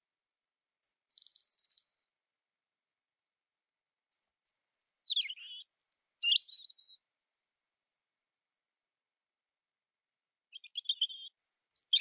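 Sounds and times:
robin singing: 0.8 - 2.1, 4.1 - 7.0, 10.5 - 12.0.

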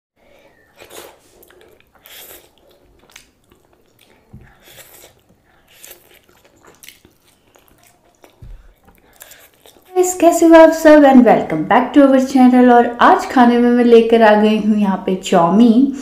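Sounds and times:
person chewing food: 0.2 - 10.0.

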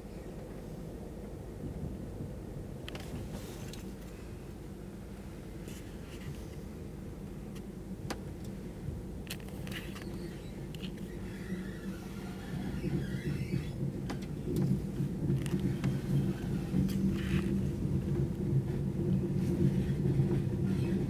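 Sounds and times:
train carriage rumble: 0.0 - 21.0
sharp clicks and rattles: 9.3 - 11.3.

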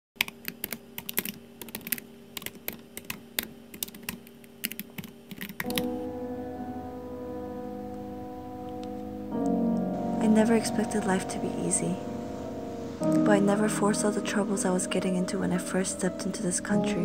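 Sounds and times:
keyboard typing: 0.2 - 6.0
soft piano notes: 5.6 - 17.0.

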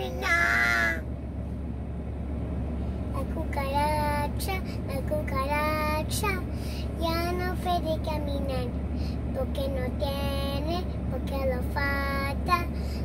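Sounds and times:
girl singing: 0.0 - 1.0, 9.3 - 12.8
car cabin hum: 0.0 - 13.0.

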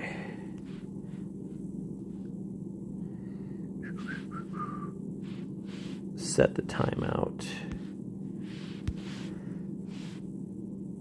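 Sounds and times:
low hum: 0.0 - 11.0
faint falling whistle-like notes: 3.8 - 5.0.

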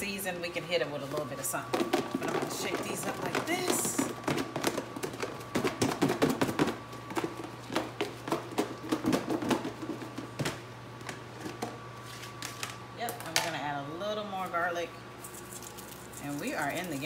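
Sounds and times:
meat knocking in plastic container: 1.7 - 10.6.

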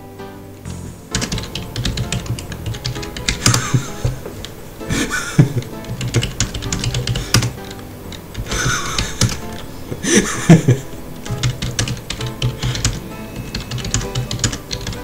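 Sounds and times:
keyboard keystroke clicks: 11.2 - 15.0.

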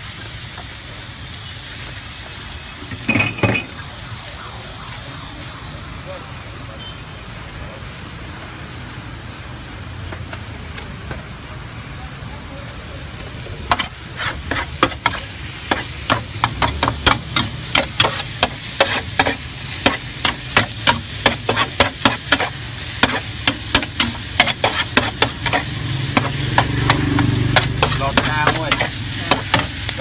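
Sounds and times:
noodles sizzling: 0.0 - 7.4, 8.4 - 30.0
metal spatula scraping griddle: 13.7 - 30.0.

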